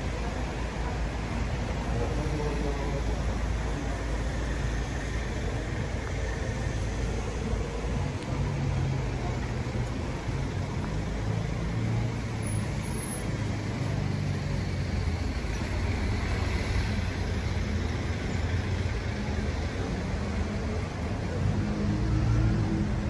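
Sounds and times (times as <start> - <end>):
street traffic noise: 0.0 - 23.0.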